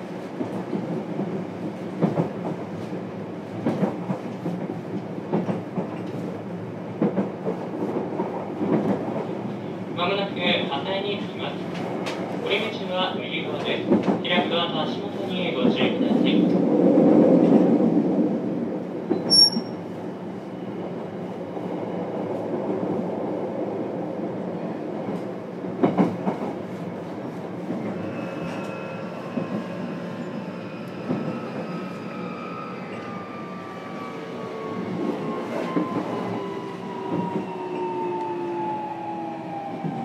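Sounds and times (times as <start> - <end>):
electric train running on rails: 0.0 - 40.0.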